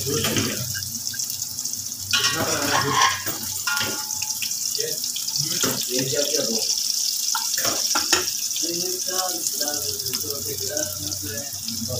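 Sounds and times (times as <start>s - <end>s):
hot oil hissing: 0.0s - 11.9s
metal spatula scraping frying pan: 2.1s - 4.4s.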